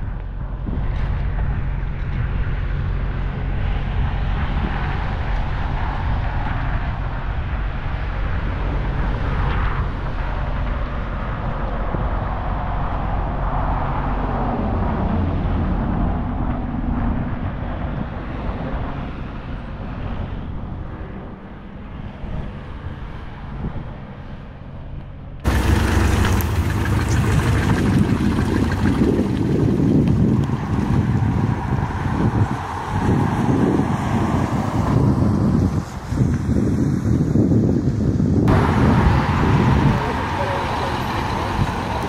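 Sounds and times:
wind buffeting microphone: 0.0s - 24.4s, 25.4s - 42.0s
low vehicle rumble: 0.0s - 42.0s
car driving slowly past: 25.4s - 37.0s, 38.5s - 42.0s.

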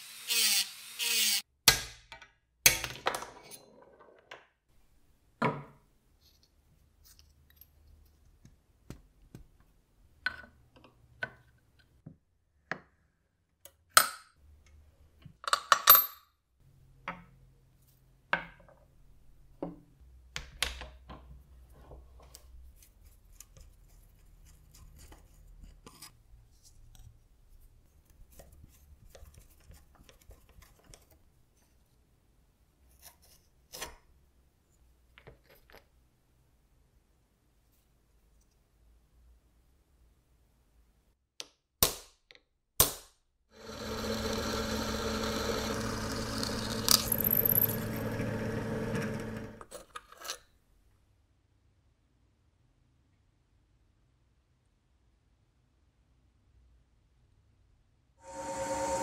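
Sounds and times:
metal parts clinking and knocking: 46.4s - 48.0s.

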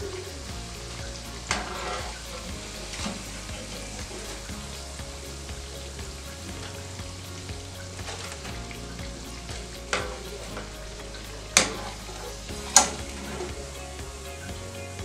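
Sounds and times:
fritters frying in oil: 0.0s - 15.0s.

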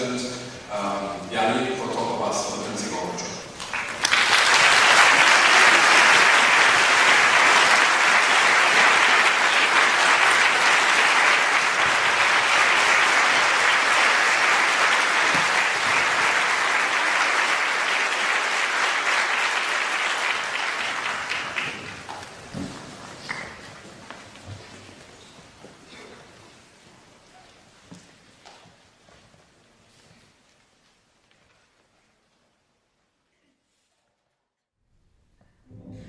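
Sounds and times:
audience applauding: 3.4s - 23.8s.

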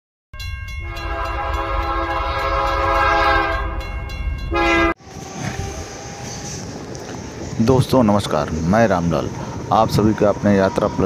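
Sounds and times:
train whistle blowing: 0.9s - 3.8s, 4.5s - 6.7s.

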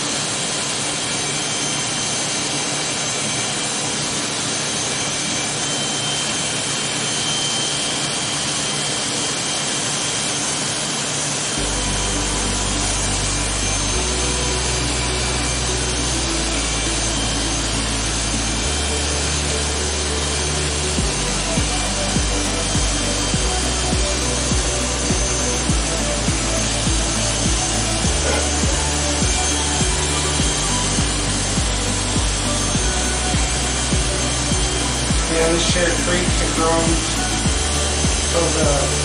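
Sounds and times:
electric hair clippers buzzing: 0.0s - 39.0s
low bass line: 11.6s - 39.0s.

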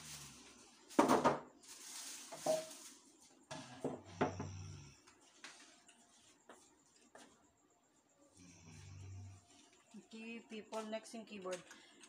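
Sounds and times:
rustling: 0.0s - 3.4s.

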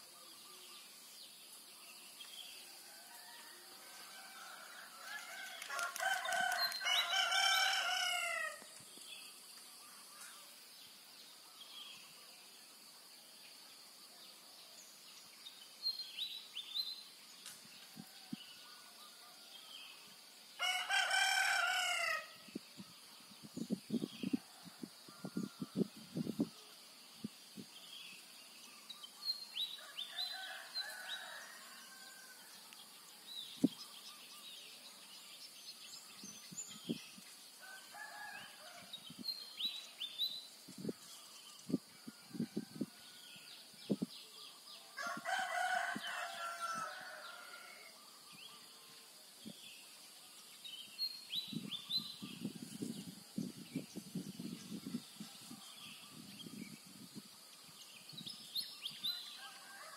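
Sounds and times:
rooster crowing: 2.8s - 8.7s, 20.6s - 22.4s, 37.6s - 38.9s, 45.0s - 47.9s, 59.4s - 59.9s.

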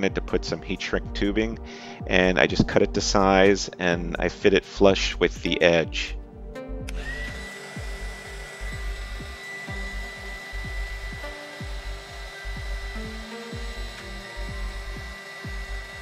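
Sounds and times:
background music with beat: 0.0s - 16.0s
heat gun fan whining: 6.9s - 16.0s.

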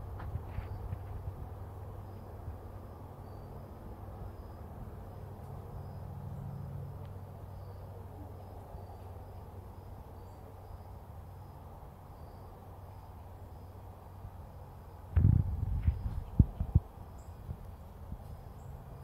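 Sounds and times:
insect chirping: 2.9s - 6.8s, 7.4s - 19.0s
steady low rumble: 14.9s - 19.0s.

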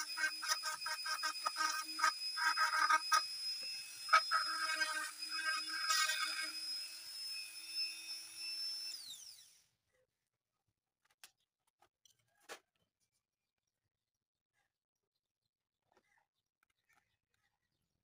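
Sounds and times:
rotary tool whining: 0.0s - 9.6s.

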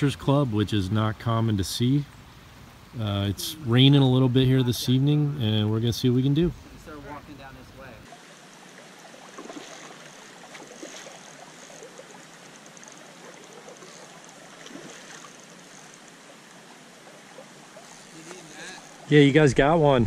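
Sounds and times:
river water flowing: 1.8s - 20.0s
faint small splashes: 8.0s - 19.1s.

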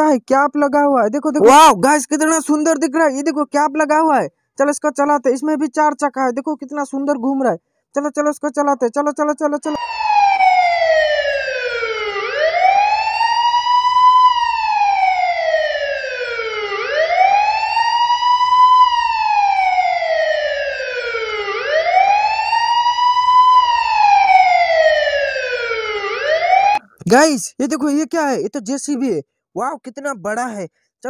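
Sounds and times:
toy car electronic siren wailing: 9.7s - 26.8s.

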